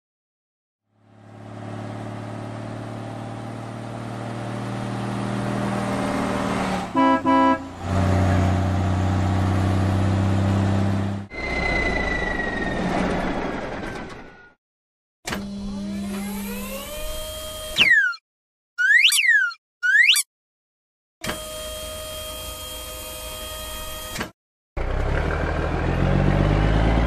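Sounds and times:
cartoon truck engine hum: 0:00.9 - 0:14.6, 0:15.3 - 0:18.2, 0:18.8 - 0:20.3, 0:21.2 - 0:27.0
short horn toots: 0:06.9 - 0:07.8.

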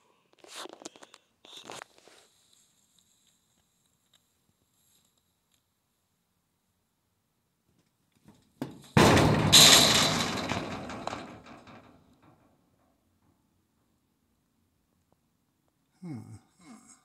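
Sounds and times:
loud echoing bang: 0:09.0 - 0:11.4.

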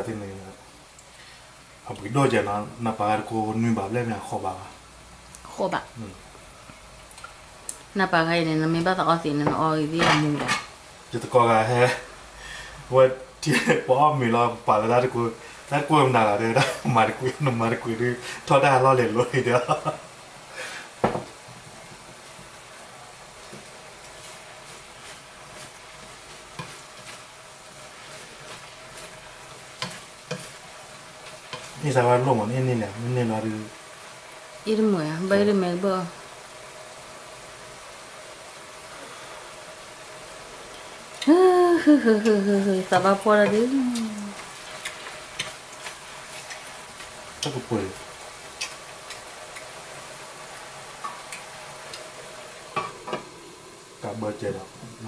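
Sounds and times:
meat sizzling in a frying pan: 0:00.0 - 0:55.0
spatula scraping a pan: 0:23.5 - 0:31.9.

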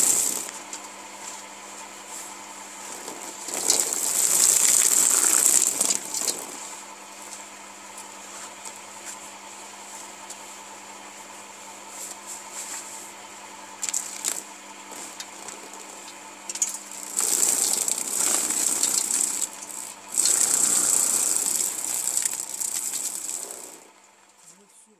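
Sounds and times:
loud rattling of plucker: 0:16.5 - 0:23.9.

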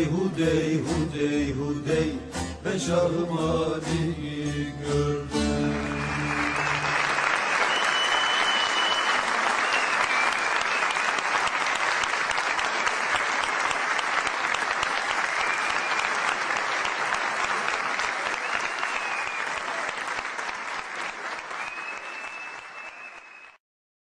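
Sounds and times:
audience applauding: 0:05.5 - 0:23.6.

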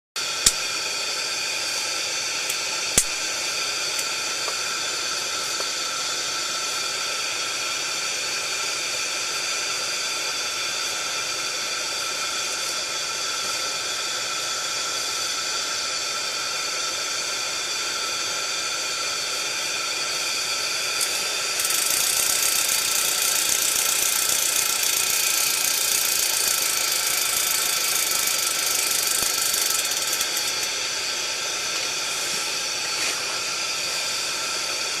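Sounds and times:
pressure burner hissing: 0:00.2 - 0:35.0
sharp click: 0:00.4 - 0:00.6, 0:02.5 - 0:03.2.

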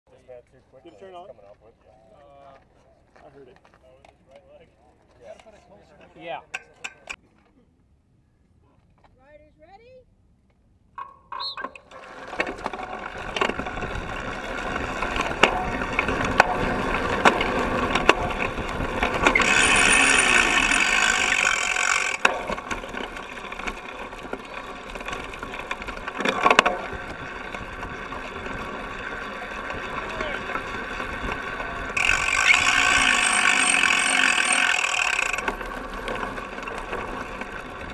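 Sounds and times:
bike tyres rolling over dirt: 0:11.8 - 0:37.9
bike chain and frame rattling: 0:11.9 - 0:37.9
bike knocking over bumps: 0:12.1 - 0:28.8.

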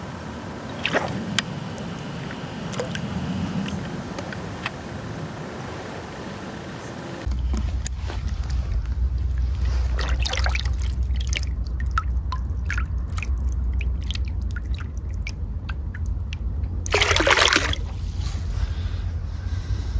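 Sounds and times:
water dripping and trickling: 0:07.8 - 0:18.0
fish splashing in water: 0:09.3 - 0:18.0.

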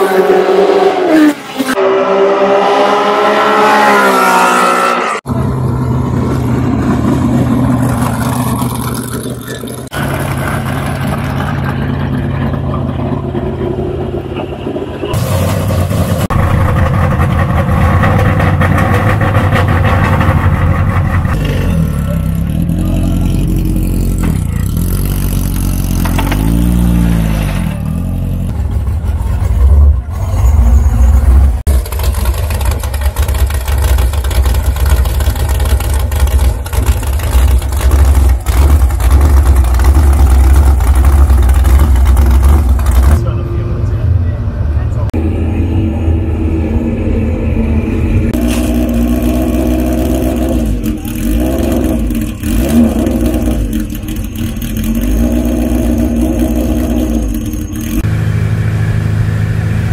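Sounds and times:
racing engine revving: 0:15.0 - 0:59.9
racing car engines idling: 0:28.4 - 0:59.9.

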